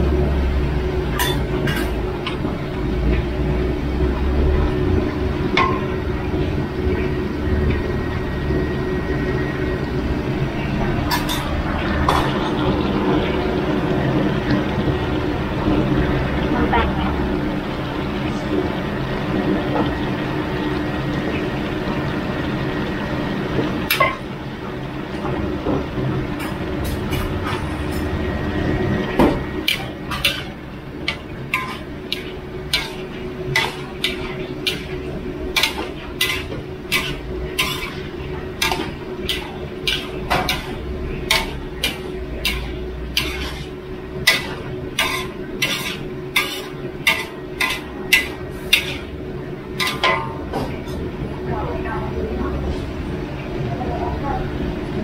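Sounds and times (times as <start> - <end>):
metal spatula clanking on wok: 1.1 - 2.4, 11.1 - 12.2, 29.6 - 49.1, 49.8 - 50.7.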